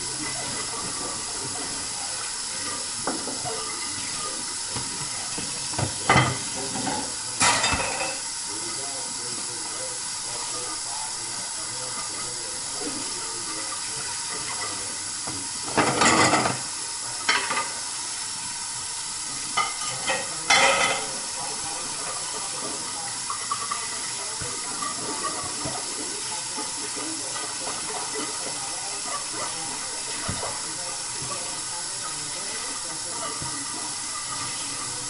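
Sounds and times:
tap running into sink: 4.7 - 7.0.

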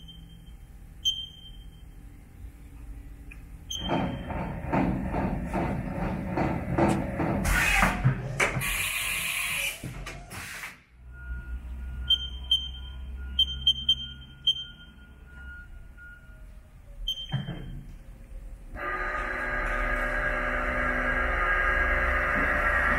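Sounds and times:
short high keypad beeps: 0.0 - 1.8, 12.0 - 15.7.

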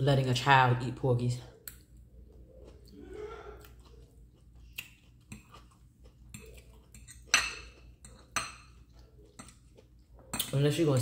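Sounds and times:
metal fork clinking on ceramic plate: 6.3 - 8.8.

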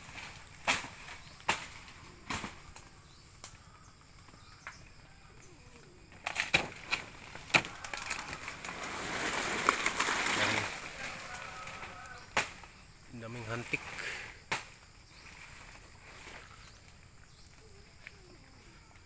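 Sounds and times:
rustling leaves and undergrowth: 0.0 - 19.0
twigs snapping and knocking: 0.2 - 3.6, 4.2 - 4.9, 5.8 - 12.8, 14.4 - 15.0.

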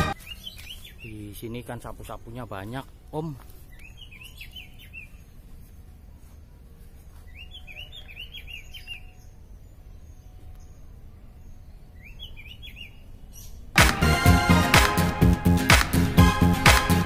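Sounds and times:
bird chirping: 0.0 - 6.0, 7.3 - 13.7.

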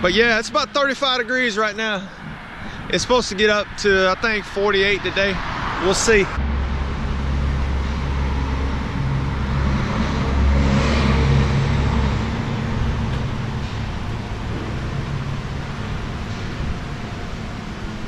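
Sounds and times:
broad rushing noise: 0.0 - 18.0
diesel truck engine idling: 11.2 - 18.0.

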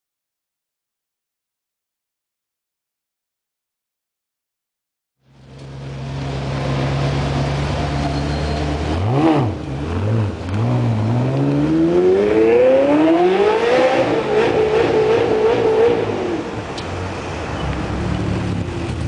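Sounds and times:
sports car engine revving: 5.4 - 16.8.

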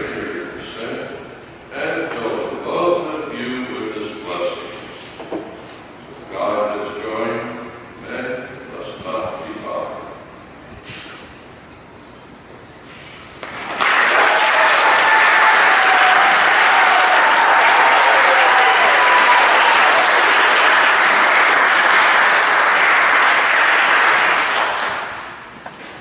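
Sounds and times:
guests applauding: 13.4 - 25.5.

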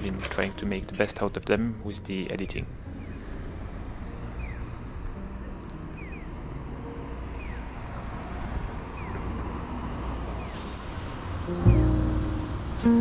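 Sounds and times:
distant traffic rumble: 0.0 - 13.0
bird chirping: 4.3 - 4.8, 5.5 - 6.4, 7.4 - 7.8, 8.9 - 9.3.

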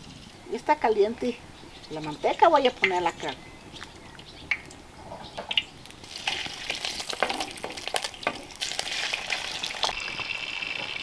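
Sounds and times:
meat sizzling in hot fat: 5.8 - 11.0.

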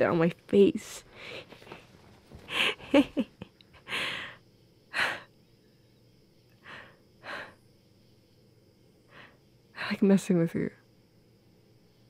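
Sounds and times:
woman breathing and sighing: 1.0 - 5.4, 6.6 - 7.6
woman short laugh: 2.5 - 3.5.

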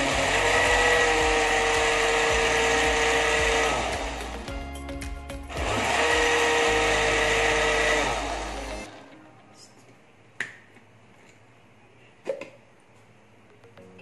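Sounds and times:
blender motor whine: 0.0 - 4.5, 5.4 - 9.0.

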